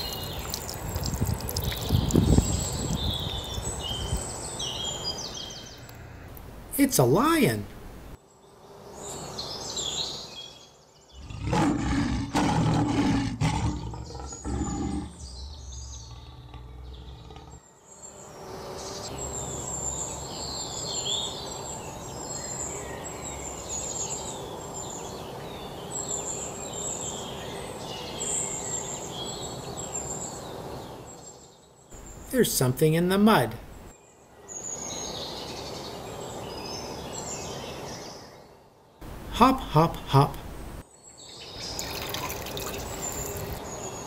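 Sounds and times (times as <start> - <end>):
birds chirping: 0.0 - 44.0
lion roaring: 11.2 - 17.7.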